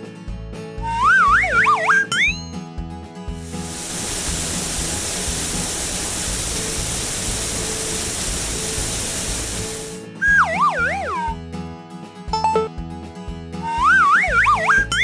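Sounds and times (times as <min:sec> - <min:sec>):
background music: 0:00.0 - 0:15.0
shower spray hiss: 0:03.4 - 0:10.0.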